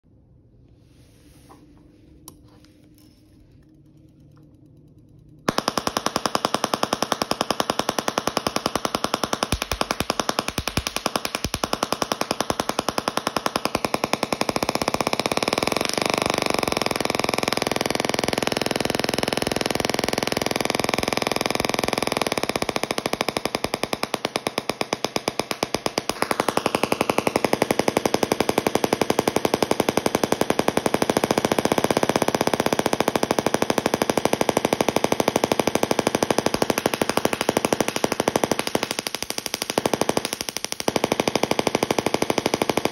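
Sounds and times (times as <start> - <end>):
tesla coil spark buzzing: 5.5 - 24.6.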